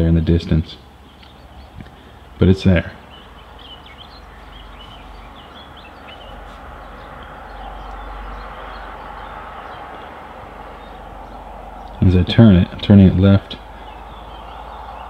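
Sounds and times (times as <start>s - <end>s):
small birds chirping: 0.0s - 15.0s
steady outdoor rush: 0.0s - 15.0s
low rumble: 3.0s - 15.0s.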